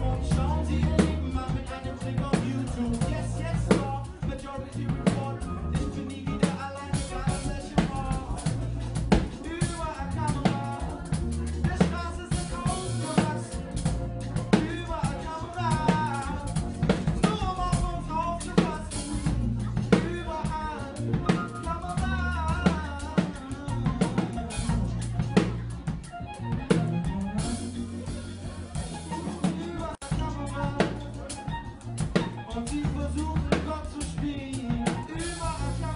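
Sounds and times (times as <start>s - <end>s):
bass line: 0.0s - 35.9s
drum kit beat: 0.0s - 35.9s
guitar: 0.0s - 35.9s
person singing: 0.0s - 35.9s.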